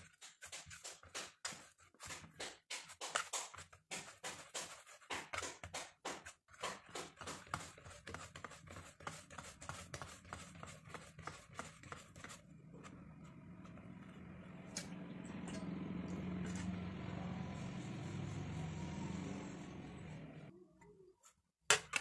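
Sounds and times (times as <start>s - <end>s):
hand slapping dough on steel plate: 0.0s - 12.4s
low steady hum: 12.4s - 20.5s.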